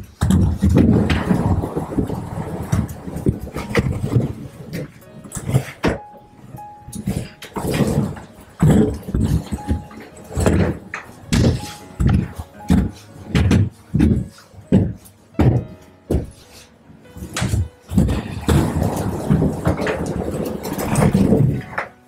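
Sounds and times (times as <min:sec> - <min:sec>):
rumbling thud of skate strides: 0:00.0 - 0:06.0, 0:17.2 - 0:21.9
roller skates rolling on hard floor: 0:00.0 - 0:22.0.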